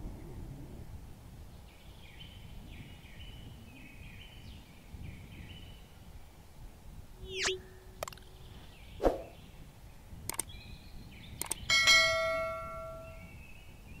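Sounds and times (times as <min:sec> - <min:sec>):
short swish: 0:07.3 - 0:07.6, 0:09.0 - 0:09.4
mouse clicks: 0:07.4 - 0:08.3, 0:10.3 - 0:10.5, 0:11.4 - 0:11.7.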